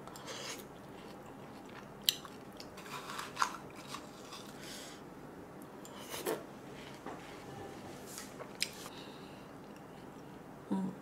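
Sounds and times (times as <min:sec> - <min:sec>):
soft wet chewing: 0:00.0 - 0:02.8, 0:08.5 - 0:10.4.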